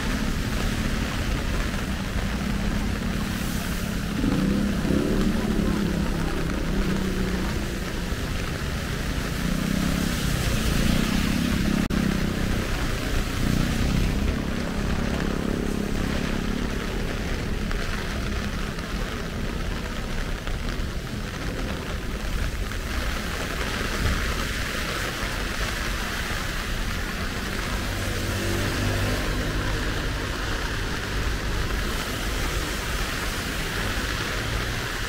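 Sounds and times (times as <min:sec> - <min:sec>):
heavy rain falling: 0:00.0 - 0:35.0
vehicle passing on wet road: 0:00.0 - 0:35.0.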